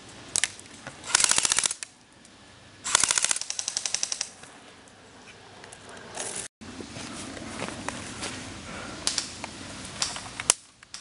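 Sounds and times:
airsoft rifle firing bursts: 1.1 - 1.8, 2.9 - 4.3.

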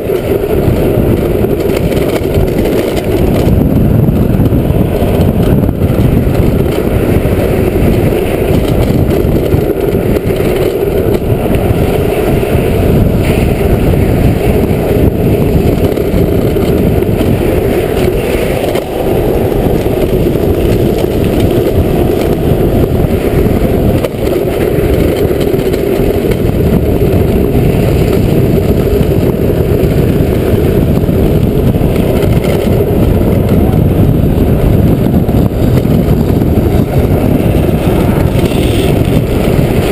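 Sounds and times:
wheels rolling on asphalt: 0.0 - 39.9
wind rushing on microphone: 0.0 - 39.9.

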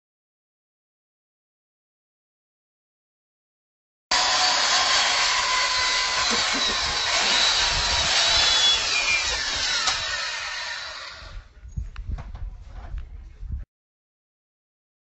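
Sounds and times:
power tool whining on metal: 4.1 - 11.4.

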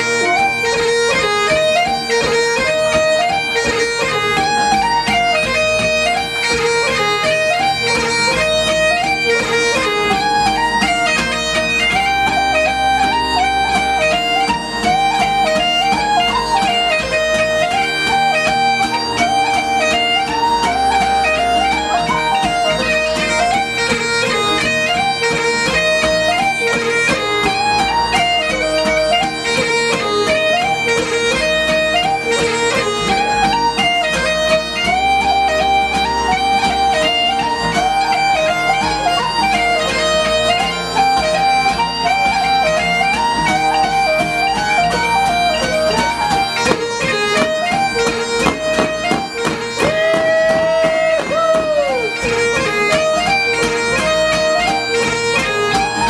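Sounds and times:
bagpipes playing fast tune: 0.0 - 56.0.

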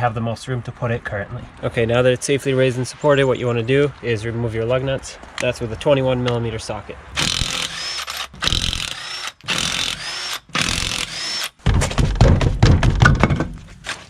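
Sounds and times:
impact wrench bursts: 7.2 - 11.6.

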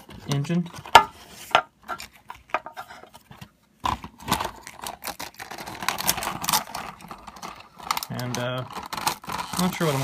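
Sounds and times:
rustling and scraping: 0.0 - 4.8.

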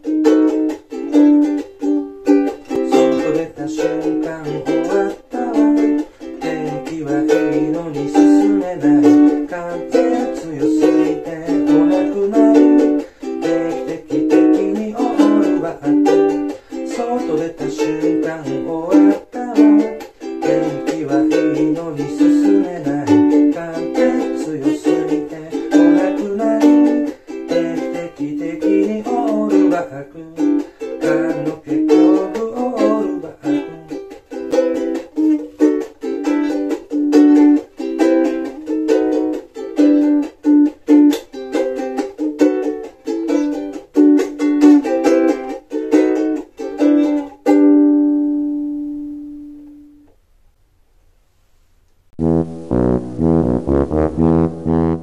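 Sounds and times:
ukulele strumming: 0.0 - 50.1
low melodic line: 52.2 - 55.0.

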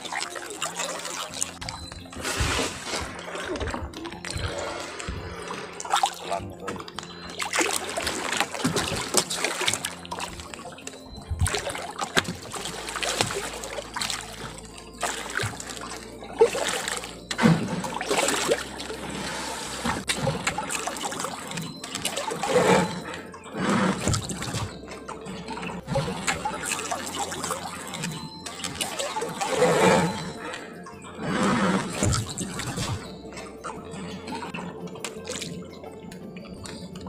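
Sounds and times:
water splashing against boat hull: 0.0 - 30.6, 31.4 - 33.8, 34.4 - 35.6.

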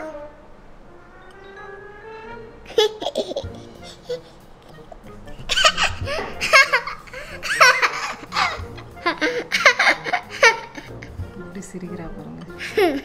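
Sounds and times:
background music: 0.0 - 13.0
baby giggling: 2.6 - 11.2, 12.5 - 13.0.

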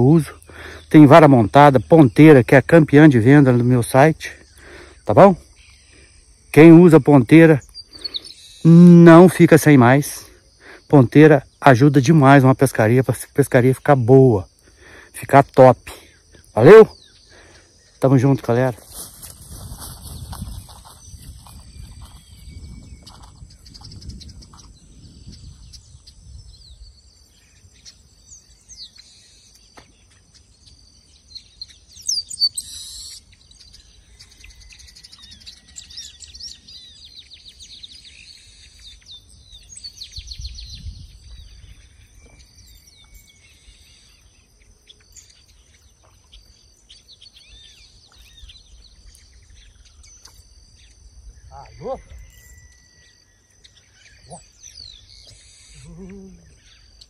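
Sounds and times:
birds chirping and calling: 0.0 - 57.0
steady high-pitched whine: 15.1 - 57.0.

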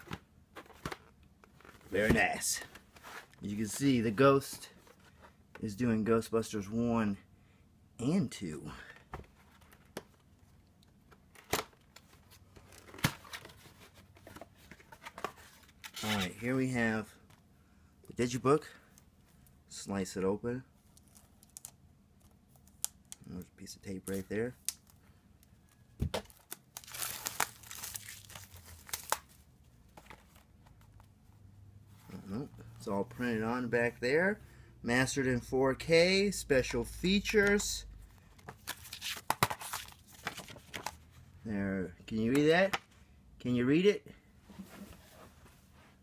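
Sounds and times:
faint cardboard rustling: 0.0 - 5.6, 11.9 - 17.5, 25.7 - 33.6, 44.4 - 46.0
wrapping crinkling and crackling: 24.1 - 31.0.

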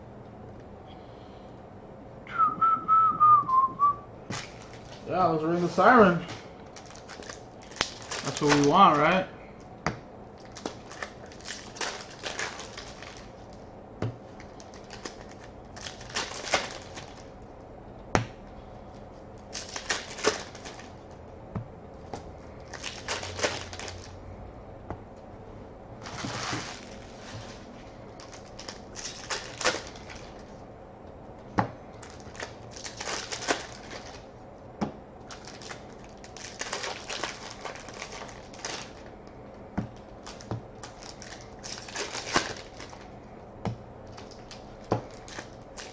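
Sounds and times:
foil wrappers crinkling: 4.3 - 9.3, 10.4 - 13.6, 14.3 - 17.3, 19.4 - 21.2, 22.5 - 24.2, 26.0 - 30.6, 31.9 - 34.3, 35.2 - 43.3, 44.0 - 45.9.

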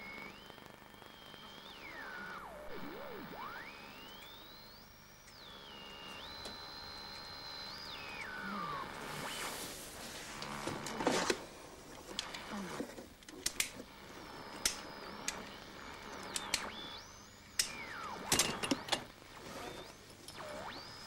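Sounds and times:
long falling electronic tone: 1.7 - 5.0
sharp clicks: 13.2 - 13.8, 14.5 - 15.6, 16.2 - 16.8.

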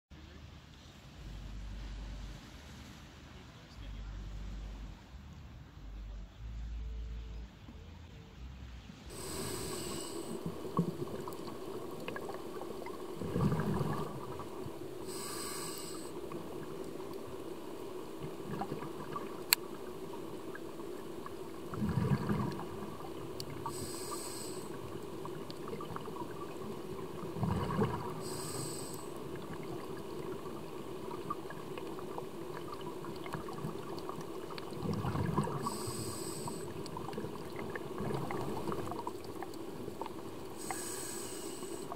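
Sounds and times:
steady low hum: 0.1 - 41.9
hissing regulator inhale: 9.1 - 10.5, 15.0 - 16.3, 23.6 - 25.0, 27.6 - 29.2, 35.4 - 36.8, 40.6 - 41.9
gurgling exhaled bubbles: 9.1 - 41.9.

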